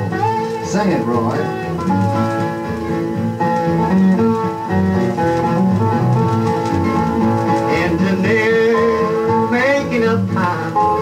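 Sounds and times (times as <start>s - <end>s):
bass: 0.0s - 11.0s
steel guitar: 0.0s - 11.0s
strummed acoustic rhythm guitar: 0.0s - 11.0s.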